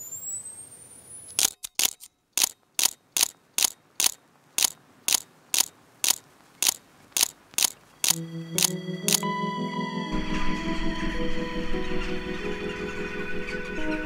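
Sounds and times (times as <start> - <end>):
sharp mechanical ticks: 1.3 - 9.3
music: 8.2 - 14.0.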